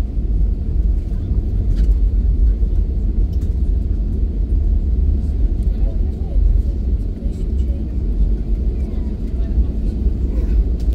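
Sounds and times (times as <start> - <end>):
airliner rolling on runway: 0.0 - 10.9.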